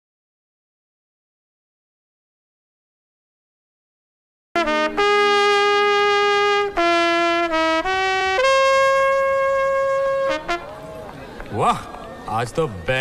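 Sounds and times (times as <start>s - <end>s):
solo trumpet playing: 4.6s - 11.0s.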